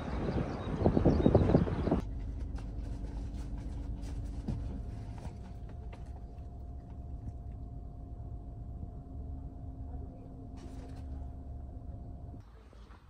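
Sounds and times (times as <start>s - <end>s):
wind noise on microphone: 0.0s - 2.1s
low rumble inside a car: 2.0s - 12.4s
faint hum: 2.0s - 12.8s.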